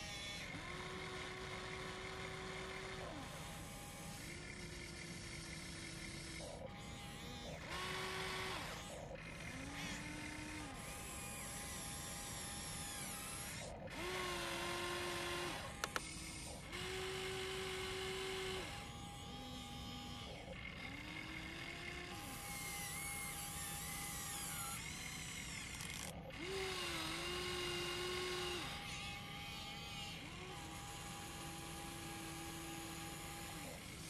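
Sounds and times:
electric motors whining: 0.0 - 34.0
quick clicks: 15.6 - 16.1.

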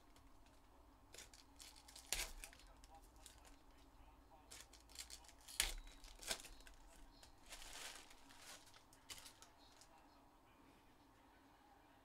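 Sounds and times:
cards rustling: 0.0 - 3.8, 4.4 - 10.0.

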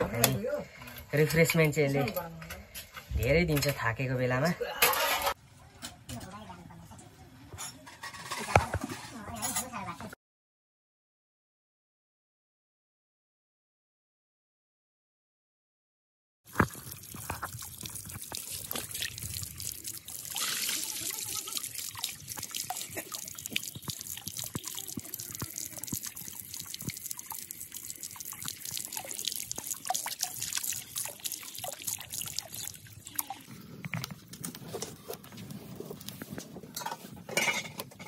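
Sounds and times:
hands rinsing chicken in water: 16.5 - 33.6
water running into a plastic tub: 16.5 - 37.5.

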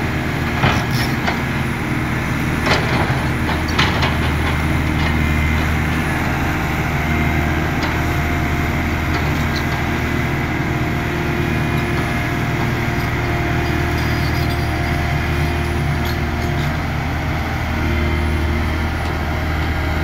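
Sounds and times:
excavator diesel engine drone: 0.0 - 20.0.

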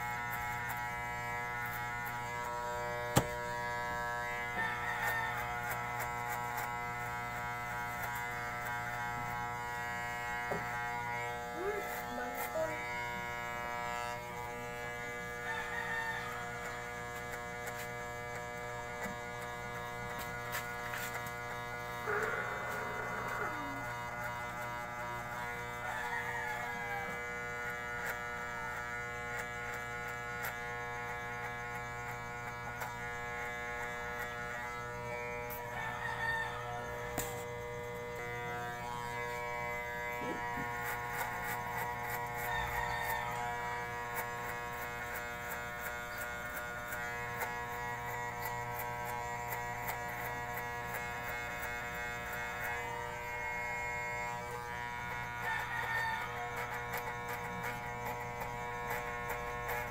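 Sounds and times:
electric hair clipper buzzing: 0.0 - 59.9
rooster crowing: 4.4 - 5.8, 15.4 - 16.6, 22.0 - 23.8, 25.8 - 27.4, 35.7 - 37.4, 42.4 - 43.9, 55.4 - 57.7.

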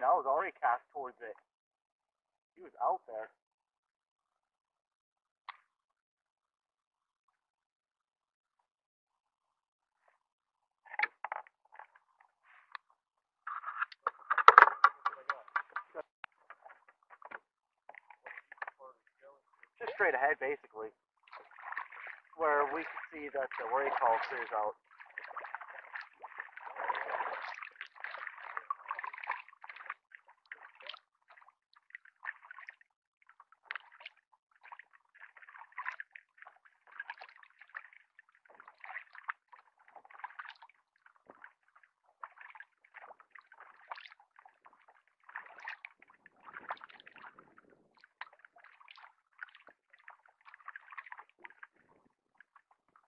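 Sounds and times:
paddle splashing in water: 21.2 - 32.7, 33.4 - 53.0.

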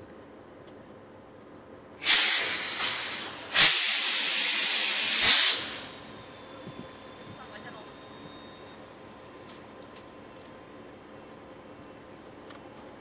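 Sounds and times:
compressed air hissing: 2.0 - 6.0.

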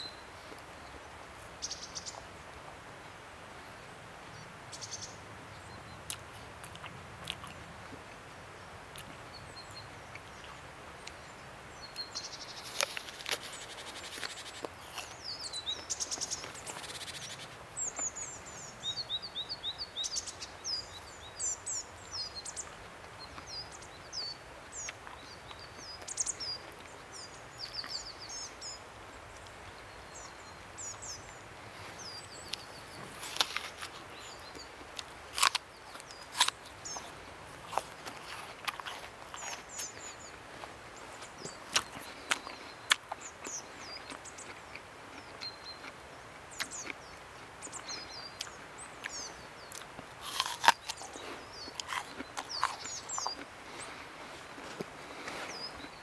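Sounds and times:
small birds chirping: 0.0 - 2.8, 3.5 - 56.0
outdoor hiss: 10.3 - 23.2.

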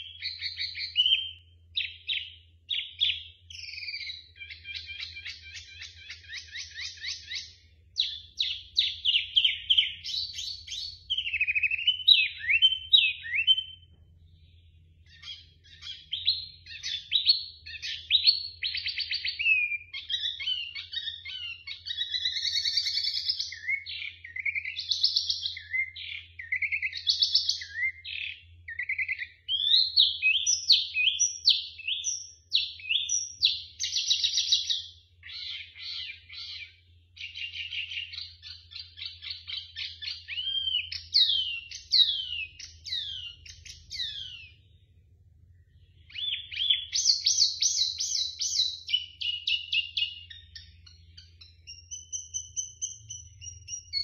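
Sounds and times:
bird singing chirps and whistles: 0.0 - 44.9, 45.5 - 54.0
faint low hum: 2.6 - 19.3.

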